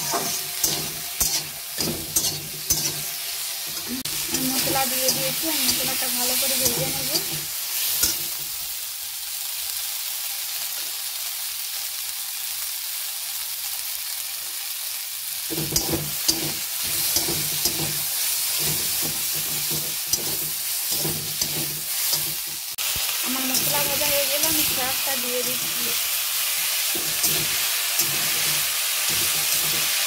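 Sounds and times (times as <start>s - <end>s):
metal spatula scraping pan: 0.0s - 8.3s, 15.5s - 22.8s, 26.6s - 30.0s
vegetables sizzling in oil: 0.0s - 30.0s.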